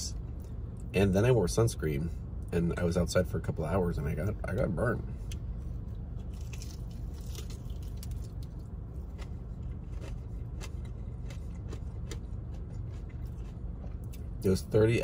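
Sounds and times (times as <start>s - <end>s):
low hum inside car: 0.0s - 15.0s
chewing crunchy food: 6.2s - 14.5s.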